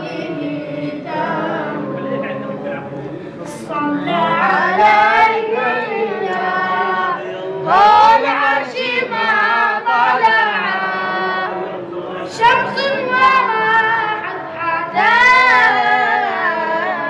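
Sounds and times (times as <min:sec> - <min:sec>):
group of men and boys chanting: 0:00.0 - 0:17.0
boy's high singing voice: 0:12.3 - 0:17.0.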